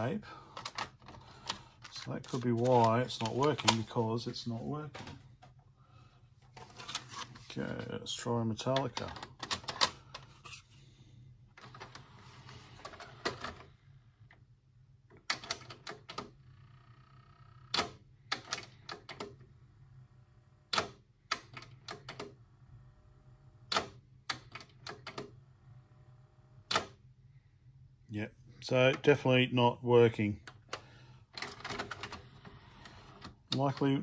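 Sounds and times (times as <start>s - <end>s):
mechanical clicks and clunks: 23.7s - 25.4s, 26.6s - 27.0s.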